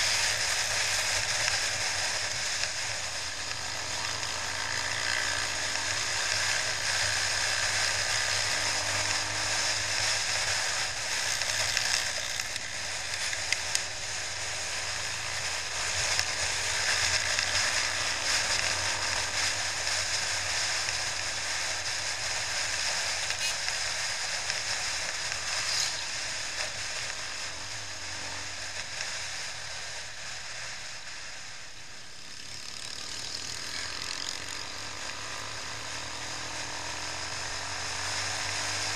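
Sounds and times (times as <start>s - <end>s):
faint motorcycle engine hum: 0.0s - 38.9s
road noise: 0.0s - 38.9s.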